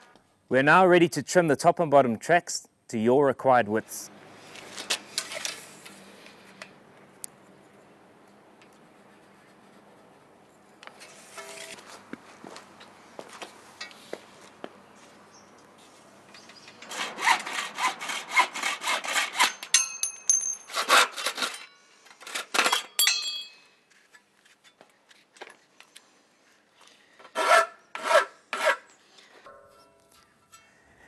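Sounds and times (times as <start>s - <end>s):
hacksaw cutting metal: 11.0s - 11.8s, 16.6s - 22.8s, 27.3s - 28.9s
high metallic ring: 19.5s - 20.8s, 22.9s - 23.8s, 29.5s - 30.9s.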